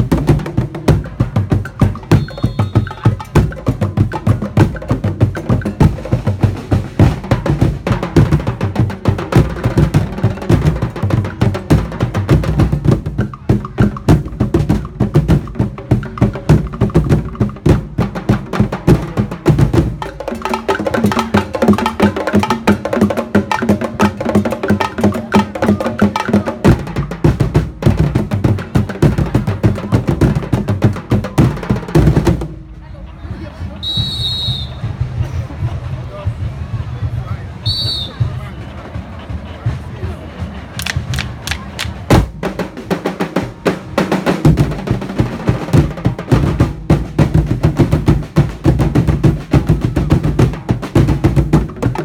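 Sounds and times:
deep drums: 0.0s - 32.8s, 38.2s - 52.0s
sharp wooden knocks: 40.8s - 42.2s.

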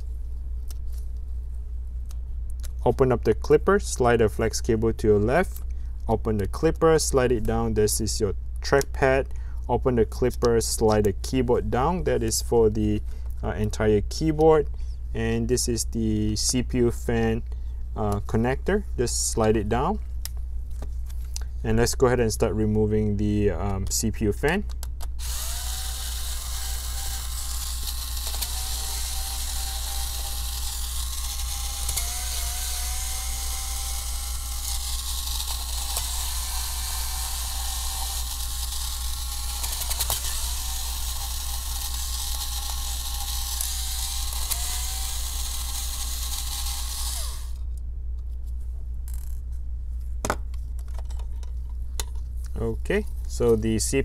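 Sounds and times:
electric screwdriver whine: 25.2s - 47.6s.

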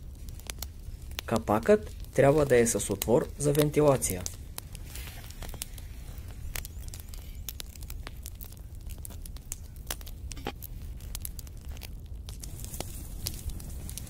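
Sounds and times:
steady low rumble: 0.0s - 14.0s
wood fire crackling: 0.0s - 14.0s.

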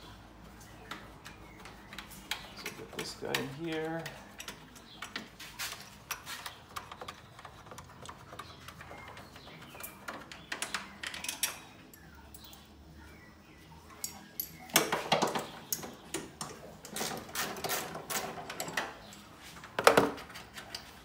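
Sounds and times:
small parts clicking and tapping: 6.0s - 12.6s.

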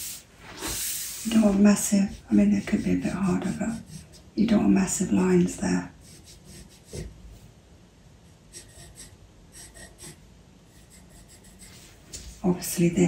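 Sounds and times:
pencil scratching on paper: 0.6s - 4.3s, 6.0s - 7.1s, 8.5s - 12.0s.

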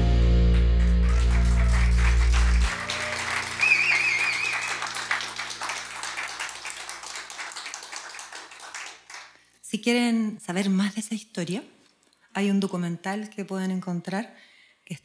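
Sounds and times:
song ending on low notes: 0.0s - 4.3s
audience applauding: 0.5s - 9.4s
wavering high whistle: 2.7s - 4.9s.

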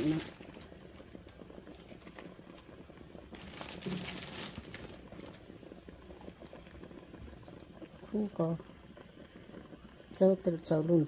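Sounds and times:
crinkling: 0.0s - 7.8s
broth simmering in a pot: 0.0s - 11.0s.

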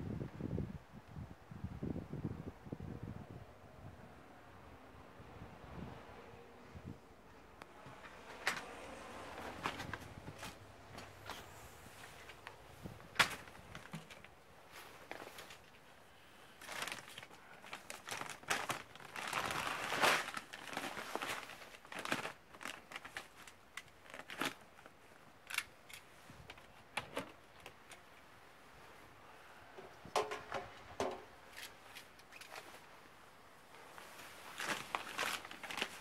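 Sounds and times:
crinkly plastic rustling: 7.6s - 29.0s, 29.8s - 36.0s
plastic buckets clicking and knocking: 29.8s - 31.3s.

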